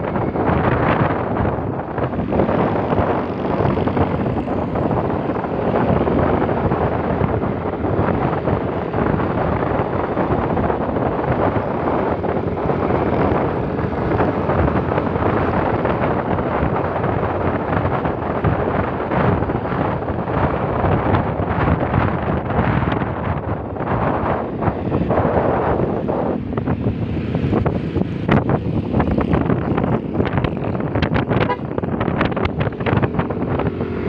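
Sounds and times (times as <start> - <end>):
motorcycle engine: 0.0 - 34.0
wind buffeting microphone: 0.0 - 34.0.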